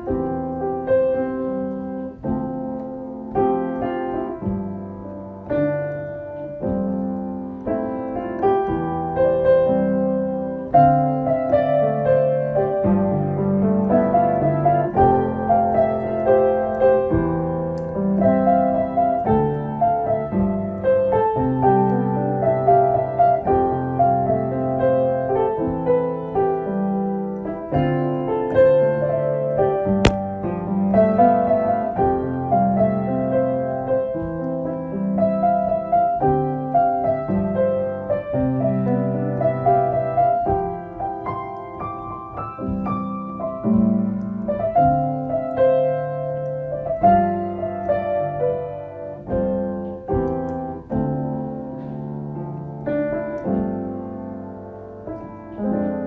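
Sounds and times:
piano music: 0.0 - 56.0
click: 1.6 - 4.2, 16.0 - 19.7, 49.3 - 51.0, 51.8 - 53.7.

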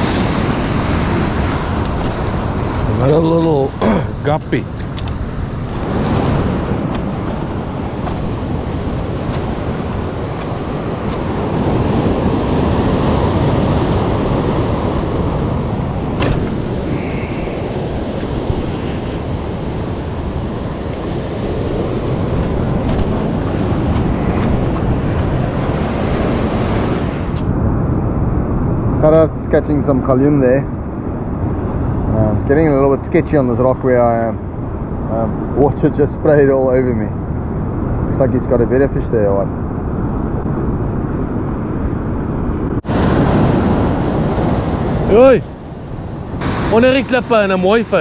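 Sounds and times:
surf washing over rocks: 0.0 - 27.4, 42.8 - 48.0
wind buffeting microphone: 0.0 - 48.0.

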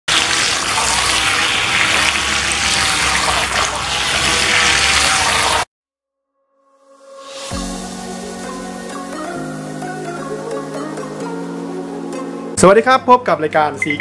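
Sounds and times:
toy boat propeller churning water: 0.0 - 5.7.

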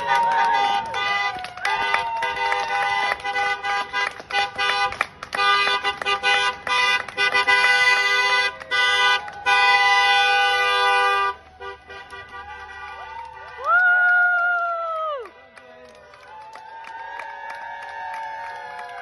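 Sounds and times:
horns honking: 0.0 - 13.7.

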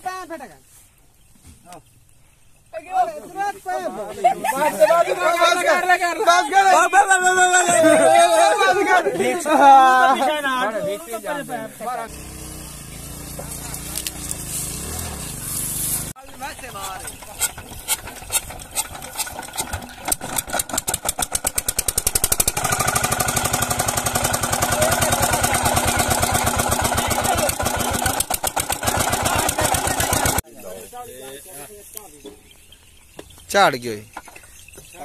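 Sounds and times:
motorcycle engine: 11.9 - 30.4
diesel engine starting and running: 12.1 - 30.4.

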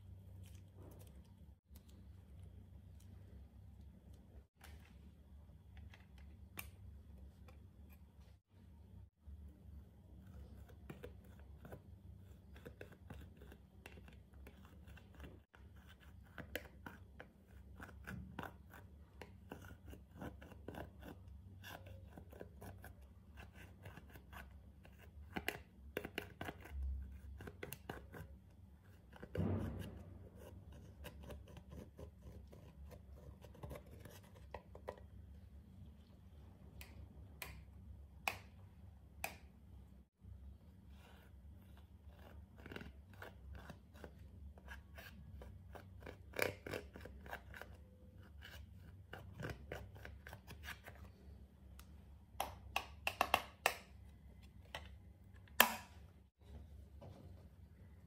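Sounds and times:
thump: 29.3 - 30.4.

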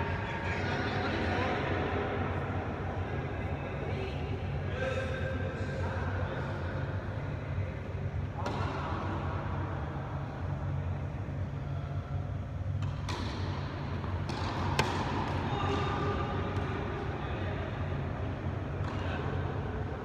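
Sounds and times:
low hum in a hall: 0.0 - 20.0
ball bouncing on court: 8.4 - 8.8, 12.8 - 16.8
tennis rackets hitting a ball: 8.4 - 9.1, 12.8 - 17.0.

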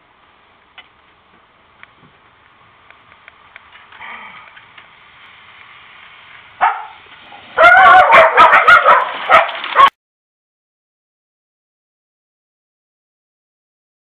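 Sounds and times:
dog barking: 6.6 - 7.0, 7.6 - 9.9.

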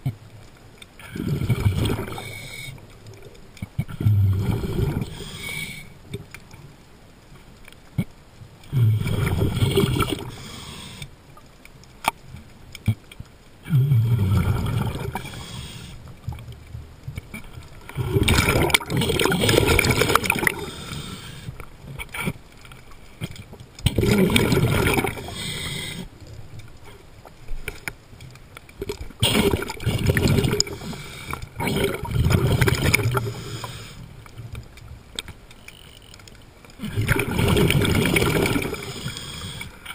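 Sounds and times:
water noise: 0.0 - 39.9
bubbling and gurgling: 1.0 - 6.7, 7.9 - 10.6, 12.8 - 27.9, 28.6 - 35.3, 36.6 - 39.8
diver breathing underwater: 3.9 - 6.0, 8.7 - 11.1, 13.7 - 16.1, 17.8 - 21.6, 24.0 - 26.2, 29.2 - 34.2, 36.8 - 39.9.

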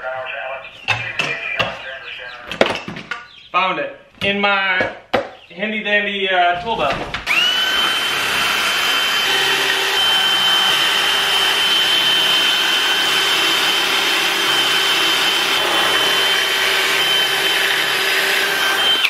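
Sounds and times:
drill bit cutting wood: 7.3 - 19.0
drill motor whining: 7.3 - 19.0.

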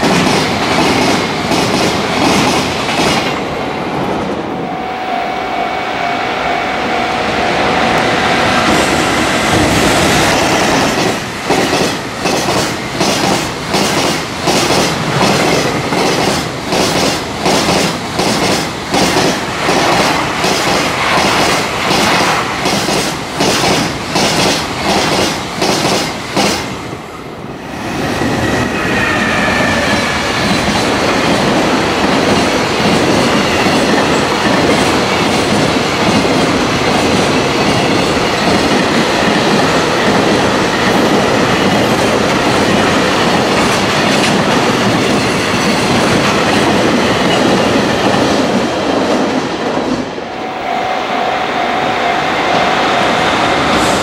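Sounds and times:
freight train rumbling: 0.0 - 54.0
train wheels clacking over rail joints: 9.5 - 26.7.

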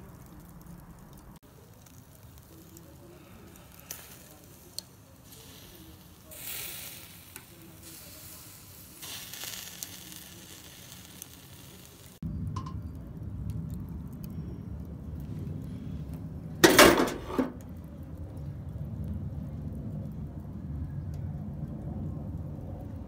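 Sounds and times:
chicken sizzling on a grill: 0.0 - 23.0
faint crackles: 0.0 - 23.0
low rumble: 12.2 - 23.0.

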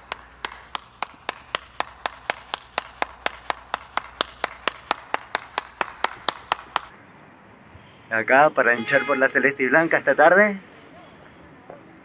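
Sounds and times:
person clapping hands: 0.0 - 6.9.

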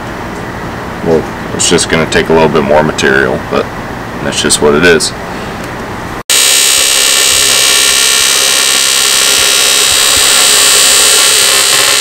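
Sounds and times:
welding arc buzzing: 6.3 - 12.0.

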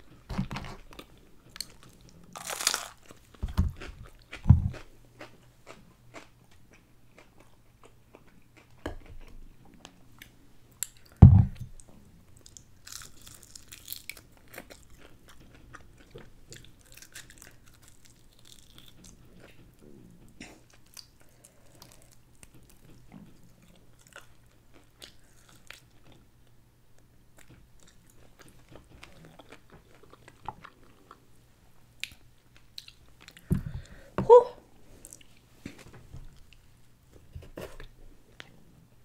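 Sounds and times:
crunchy biting and chewing: 1.6 - 9.3, 12.5 - 19.6
dull thumps: 11.2 - 11.7, 33.5 - 34.3.

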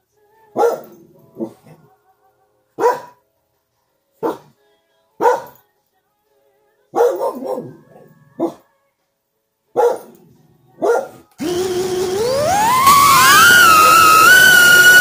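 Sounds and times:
dog barking: 0.6 - 1.8, 2.8 - 3.2, 4.2 - 4.6, 5.2 - 5.6, 7.0 - 8.6, 9.7 - 11.3.

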